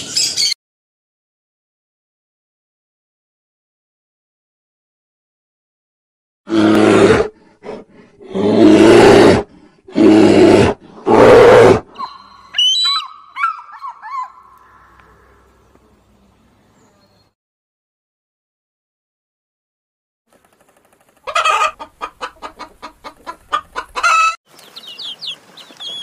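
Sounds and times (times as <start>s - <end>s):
large animal roaring: 6.5s - 12.0s
eagle chattering calls: 12.0s - 15.4s, 23.8s - 26.0s.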